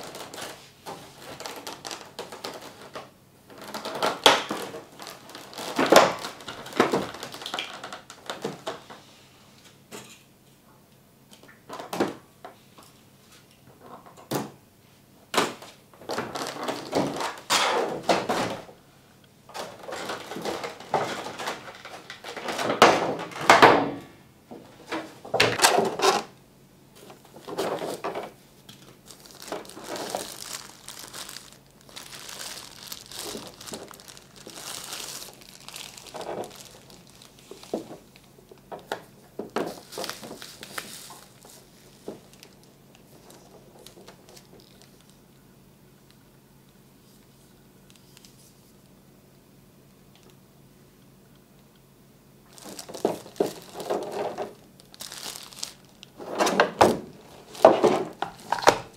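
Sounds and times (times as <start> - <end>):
plastic bags crinkling: 0.0 - 8.9, 16.0 - 18.7, 19.5 - 23.4, 27.0 - 45.4, 52.4 - 58.9.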